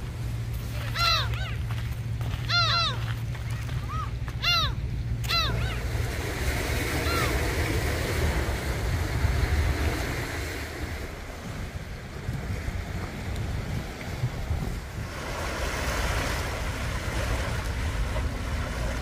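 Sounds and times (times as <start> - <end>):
short pitched calls: 0.7 - 1.7, 2.4 - 5.9
wind on microphone: 5.4 - 19.0
waves washing onto pebbles: 5.8 - 19.0.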